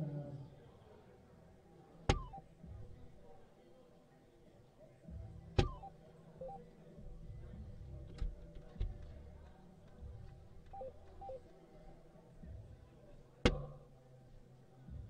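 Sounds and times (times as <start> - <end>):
dart hitting dartboard: 2.1 - 2.4
electronic beeps: 2.1 - 2.4, 5.6 - 6.6, 10.8 - 11.4.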